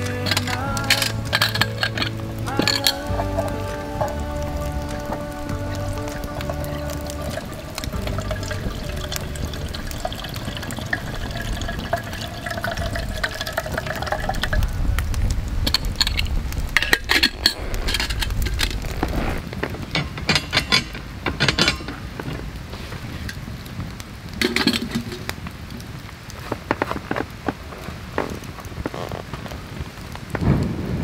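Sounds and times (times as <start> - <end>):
water pouring into kettle: 0.0 - 15.0, 24.4 - 25.3.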